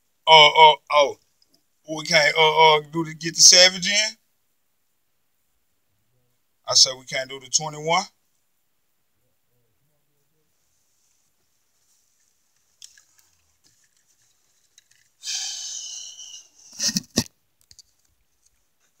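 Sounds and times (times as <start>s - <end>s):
phone handling rustle: 12.1s - 15.2s.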